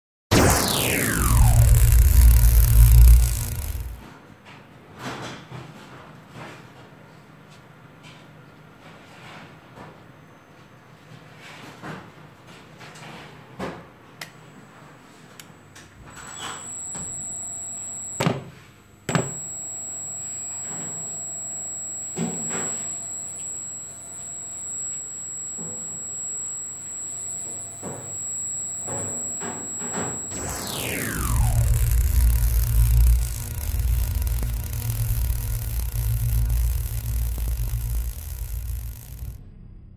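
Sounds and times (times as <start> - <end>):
servo motor whine: 0.3 - 4.0, 16.0 - 18.4, 19.1 - 39.4
sharp clicks: 0.3 - 4.0, 20.6 - 39.4.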